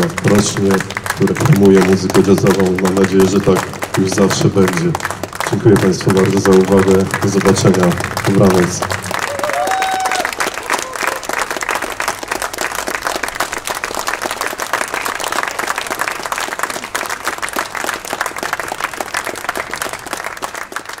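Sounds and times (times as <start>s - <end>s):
audience applauding: 0.0s - 21.0s.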